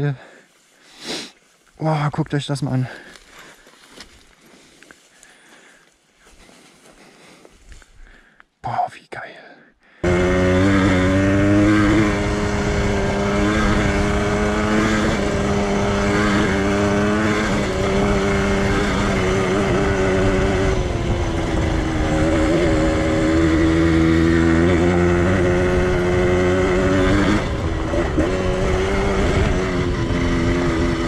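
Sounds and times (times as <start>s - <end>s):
motorcycle engine running: 10.0s - 31.0s.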